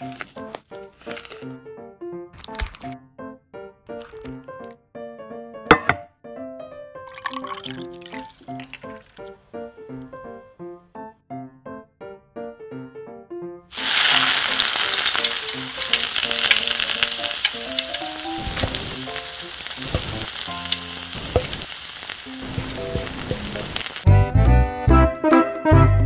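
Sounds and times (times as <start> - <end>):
chicken sizzling in hot oil: 0.0 - 1.5, 2.4 - 3.0, 7.1 - 10.4, 13.7 - 24.1
crackling pops of frying: 0.0 - 1.5, 2.4 - 3.0, 3.9 - 4.7, 7.1 - 10.4, 13.7 - 24.1
wooden spoon stirring: 0.0 - 1.5, 2.4 - 3.0, 7.1 - 9.4, 13.8 - 24.1.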